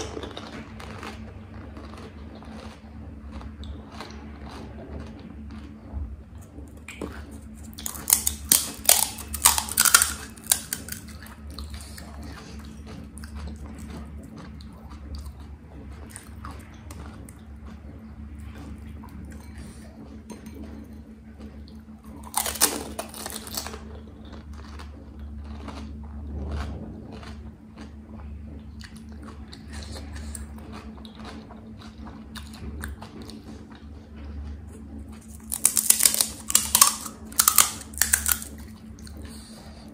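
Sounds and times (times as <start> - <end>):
quiet chewing: 0.0 - 39.9
steady low hum: 0.0 - 39.9
crisp shells crunching: 7.6 - 11.1, 22.2 - 23.8, 35.2 - 38.6.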